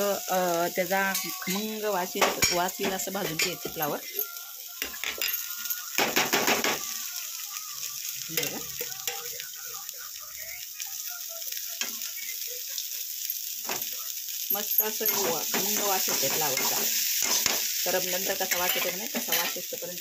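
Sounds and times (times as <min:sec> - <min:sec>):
vegetables sizzling in oil: 0:00.0 - 0:20.0
metal spoon stirring in pan: 0:00.7 - 0:07.0, 0:08.0 - 0:09.5, 0:13.1 - 0:19.7.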